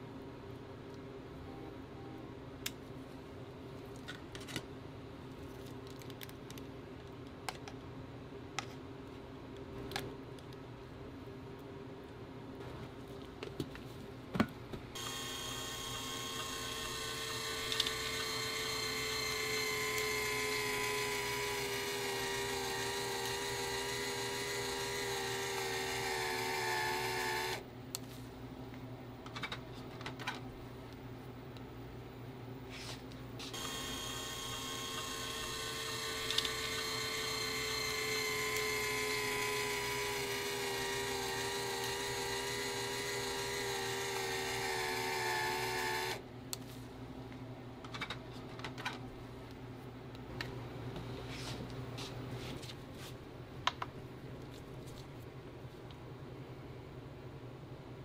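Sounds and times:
electric motor whining: 0:15.0 - 0:27.6, 0:33.5 - 0:46.2.

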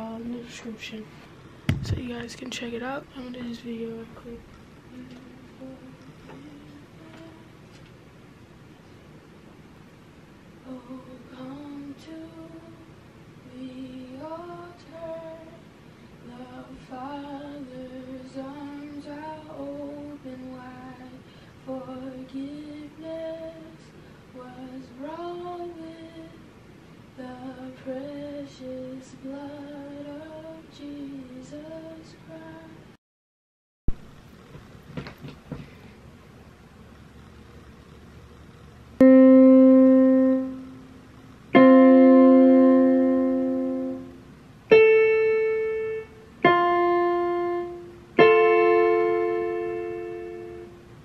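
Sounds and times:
woman singing unaccompanied: 0:00.0 - 0:01.1, 0:01.8 - 0:07.8, 0:10.6 - 0:26.6, 0:27.2 - 0:33.0, 0:39.0 - 0:50.8.

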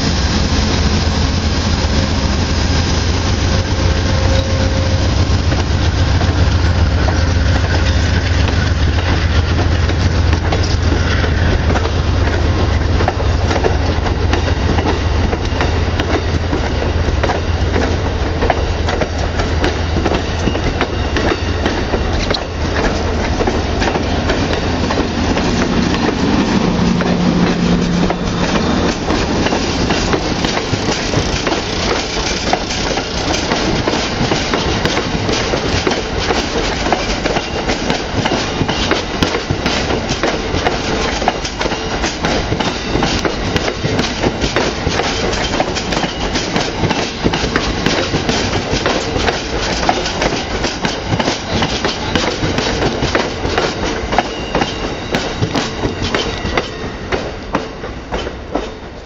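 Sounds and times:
train cars rumbling past: 0:00.0 - 0:59.0
brief higher tone: 0:03.5 - 0:05.2
wheels clicking on rails: 0:04.2 - 0:59.0.

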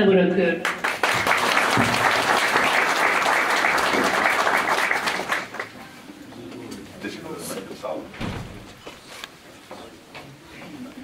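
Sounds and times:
audience applauding: 0:00.6 - 0:05.8.

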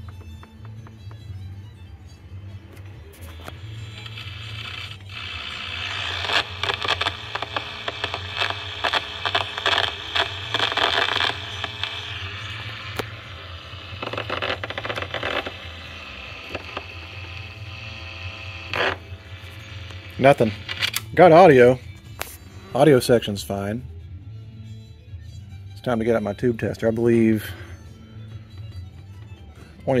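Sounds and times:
mains hum: 0:00.0 - 0:23.0
scratchy crackling static: 0:02.7 - 0:23.6.

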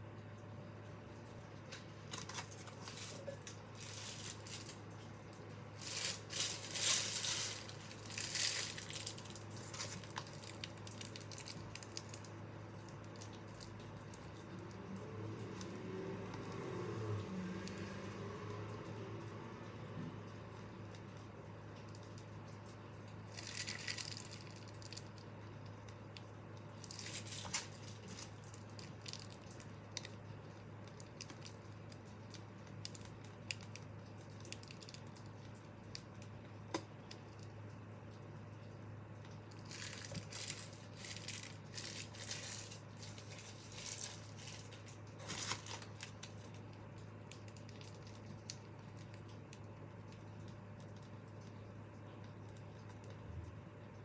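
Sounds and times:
steady low hum: 0:00.0 - 0:54.0
piping bag and paper crinkling: 0:01.7 - 0:16.7, 0:20.9 - 0:38.2, 0:39.0 - 0:53.9.

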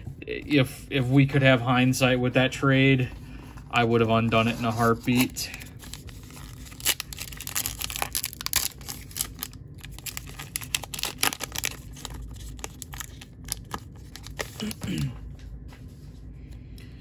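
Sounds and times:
card pack wrapper tearing: 0:04.4 - 0:14.9.

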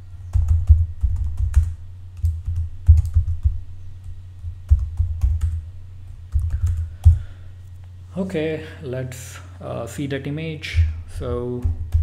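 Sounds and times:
typing on computer keyboard: 0:00.4 - 0:03.5.

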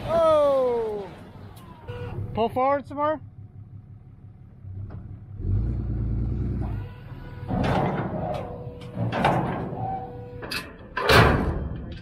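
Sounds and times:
dirt sliding and scraping: 0:04.9 - 0:11.0.

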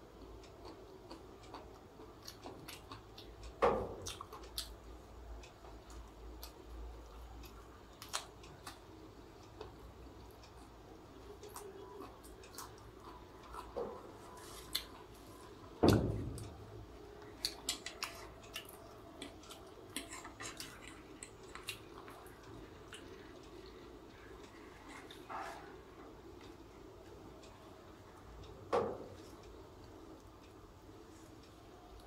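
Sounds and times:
chewing with wet mouth clicks: 0:00.6 - 0:04.8, 0:05.8 - 0:08.8, 0:11.4 - 0:13.8, 0:17.2 - 0:25.3.

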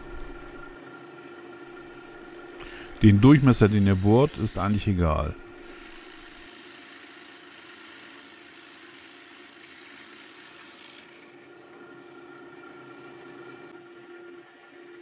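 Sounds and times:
drill press motor humming: 0:00.0 - 0:15.0
drill bit boring into plywood: 0:02.6 - 0:11.4.

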